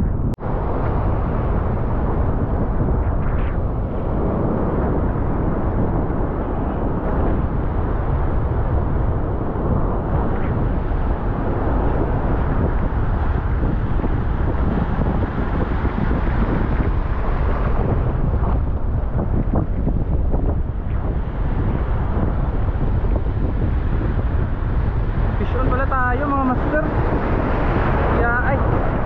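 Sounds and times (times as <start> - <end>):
wind buffeting microphone: 0.0 - 29.0
surf breaking: 7.9 - 29.0.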